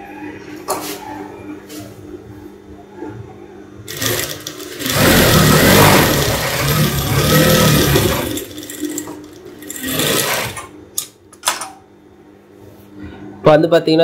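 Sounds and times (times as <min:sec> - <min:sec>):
sewing machine stitching: 0:03.9 - 0:10.7.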